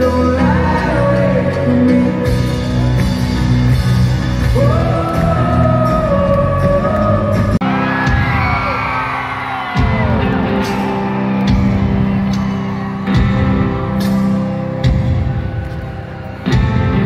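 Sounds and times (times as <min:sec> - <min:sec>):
person singing: 0:00.0 - 0:02.9, 0:04.4 - 0:07.8
live folk-rock band: 0:00.0 - 0:17.0.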